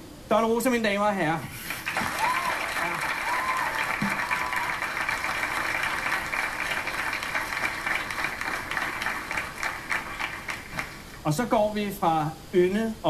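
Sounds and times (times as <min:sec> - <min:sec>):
studio audience applauding: 0:01.6 - 0:11.3.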